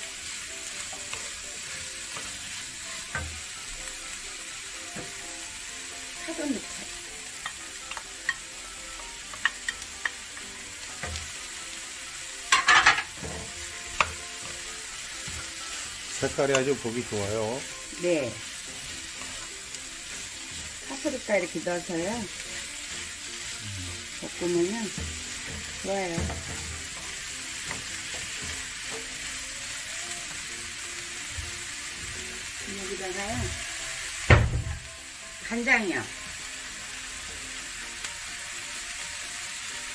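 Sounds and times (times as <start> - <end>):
vegetables sizzling in a pan: 0.0 - 39.9
spatula knocking: 12.5 - 14.6
spatula tapping pan: 12.5 - 17.0, 24.5 - 29.4.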